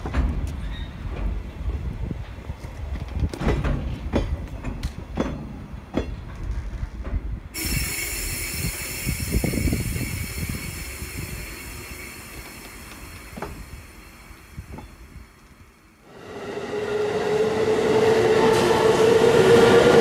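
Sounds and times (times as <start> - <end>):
freight train rumble: 0.0 - 20.0
steady hiss: 7.6 - 16.1.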